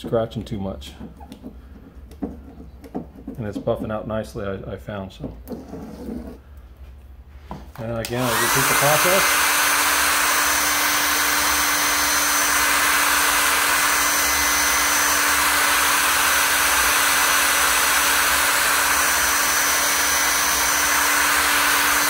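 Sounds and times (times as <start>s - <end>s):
hair dryer running: 8.0s - 22.0s.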